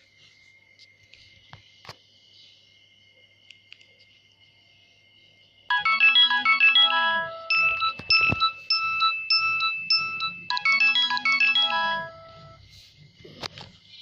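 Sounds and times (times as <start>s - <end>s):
polyphonic phone ringtone: 5.7s - 12.7s.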